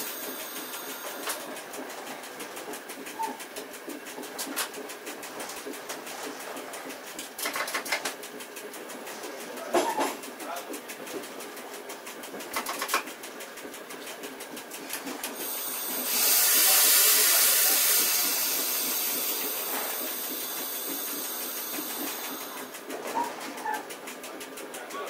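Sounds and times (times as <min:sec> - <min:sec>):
compressed air hissing: 0:00.0 - 0:01.4, 0:15.3 - 0:22.8
running train: 0:00.0 - 0:25.0
wheels clicking over track: 0:00.0 - 0:25.0.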